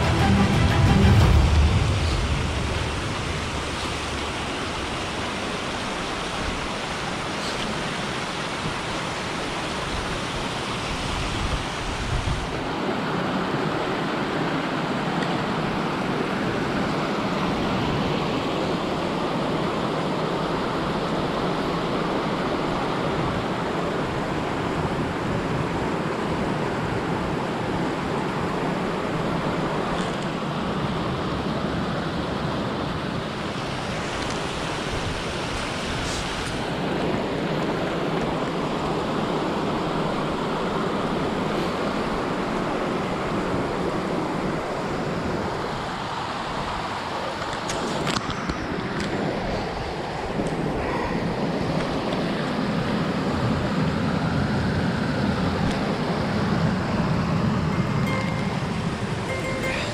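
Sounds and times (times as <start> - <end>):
waterfall rushing: 0.0 - 29.9, 33.0 - 47.2, 57.0 - 59.9.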